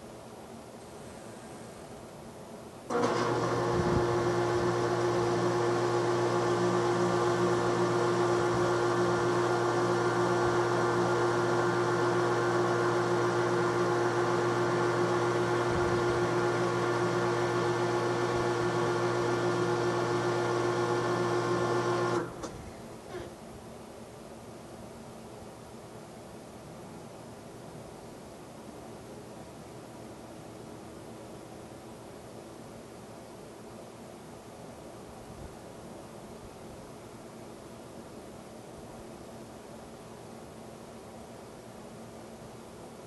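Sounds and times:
machine humming: 0:02.9 - 0:23.4.

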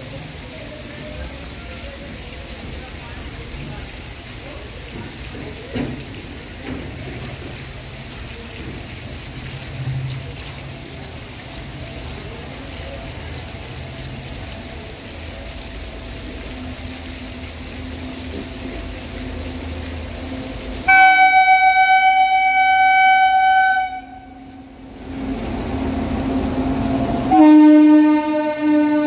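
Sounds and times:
heavy rain hissing: 0:00.0 - 0:29.0
locomotive horn blast: 0:20.8 - 0:24.8, 0:27.2 - 0:29.0.

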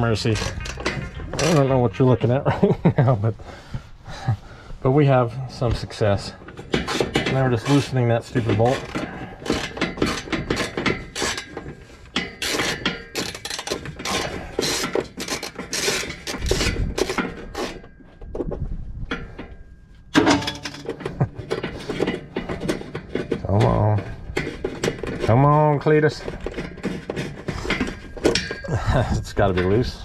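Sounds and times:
hand ratchet clicking: 0:08.8 - 0:11.6, 0:12.2 - 0:17.8.

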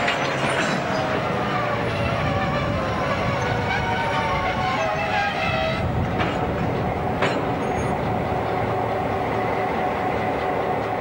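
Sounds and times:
sharp clicks from wheels on track: 0:00.0 - 0:01.2, 0:06.0 - 0:08.6
diesel locomotive rumbling: 0:00.0 - 0:11.0.

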